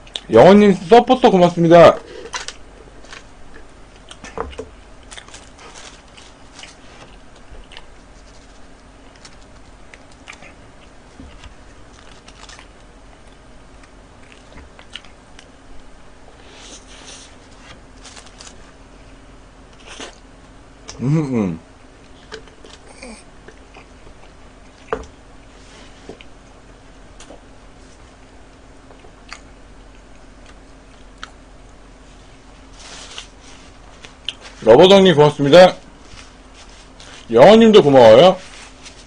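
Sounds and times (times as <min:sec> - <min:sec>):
man chewing and biting: 0:03.2 - 0:15.5, 0:28.2 - 0:32.0, 0:33.2 - 0:34.5.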